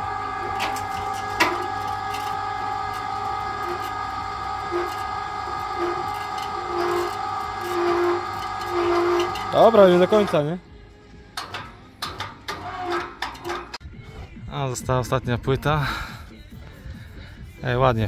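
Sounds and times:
short low squeaks: 0.0s - 10.6s, 11.4s - 13.8s
winch motor whining: 0.0s - 13.8s.

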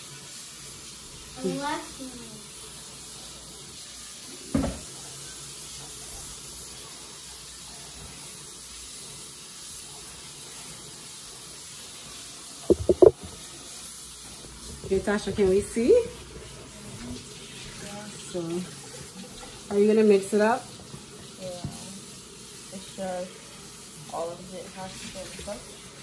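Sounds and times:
tap running into sink: 4.5s - 4.9s, 12.7s - 13.4s.

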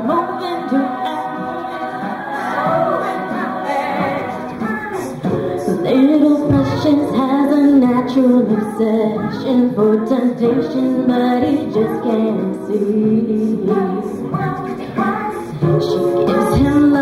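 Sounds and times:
a cappella group singing: 0.0s - 17.0s.

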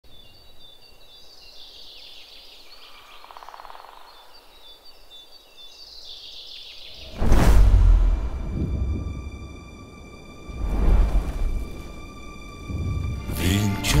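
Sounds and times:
birds chirping and trilling: 0.0s - 7.5s.

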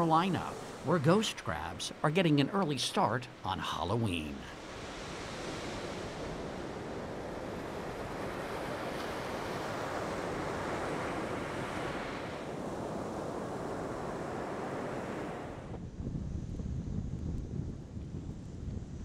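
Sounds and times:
ocean surf breaking on beach: 0.0s - 15.8s.

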